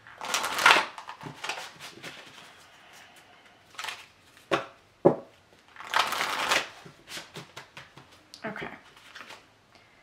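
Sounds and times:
card rustling: 0.2 - 2.6.

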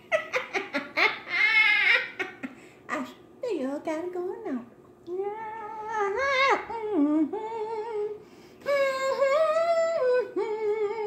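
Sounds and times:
woman singing wordlessly: 5.1 - 11.0.

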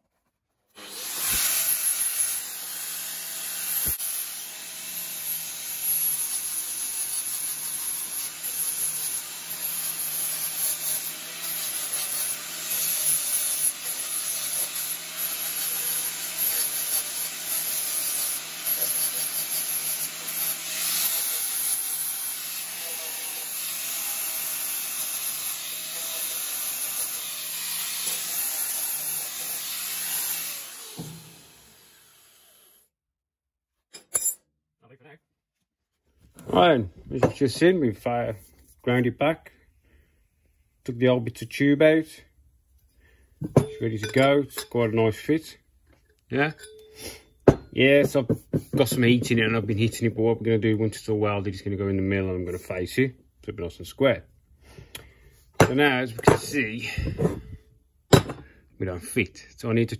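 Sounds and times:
angle grinder grinding metal: 0.8 - 32.9.

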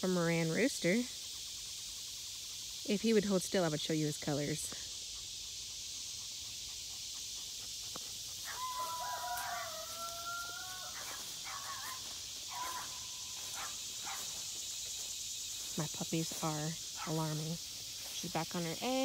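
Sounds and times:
insects chorus: 0.0 - 19.0
rooster crowing: 8.4 - 13.1.

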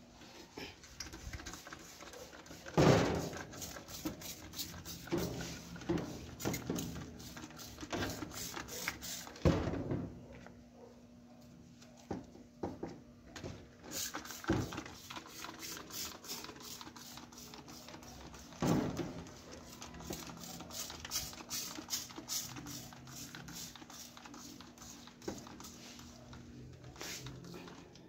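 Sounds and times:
spray bottle hissing: 1.1 - 9.4, 13.9 - 18.4, 19.7 - 26.1, 27.0 - 27.5.

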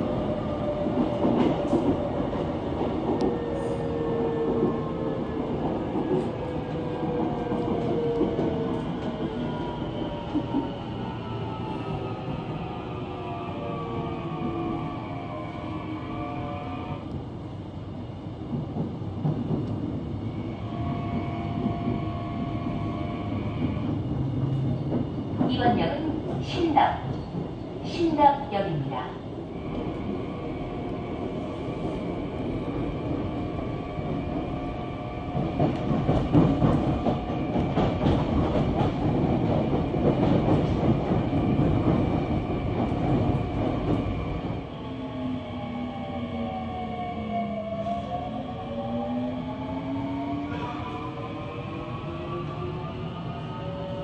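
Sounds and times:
wheels rumbling on rail: 0.0 - 10.8, 29.4 - 44.8
subway wheels rumbling on track: 0.0 - 54.0.

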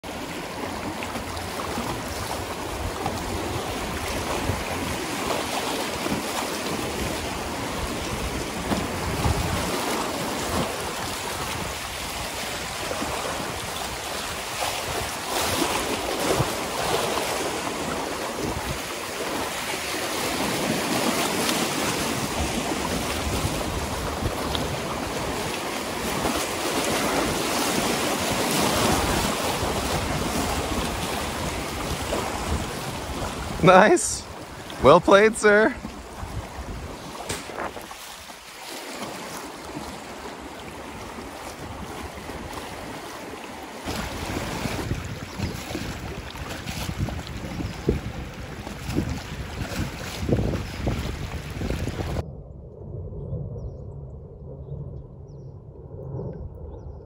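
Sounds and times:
river rushing over rocks: 24.8 - 35.8.

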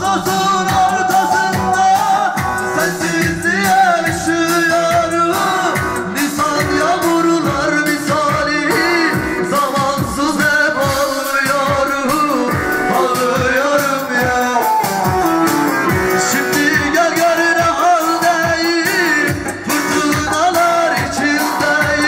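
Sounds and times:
electronic music with steady beat: 0.0 - 22.0
man singing into microphone: 0.0 - 22.0.

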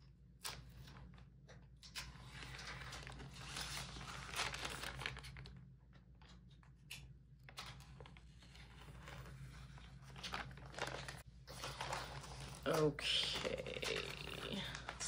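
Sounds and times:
plastic wrap crinkling and tearing: 1.8 - 6.3, 7.5 - 15.0.

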